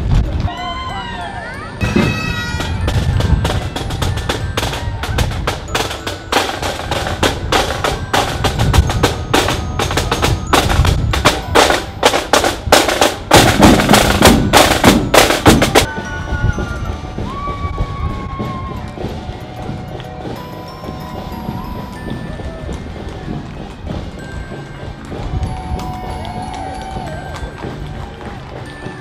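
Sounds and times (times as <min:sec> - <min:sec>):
snare drums rattling: 0:01.8 - 0:15.9
bass drum beats: 0:01.8 - 0:29.0.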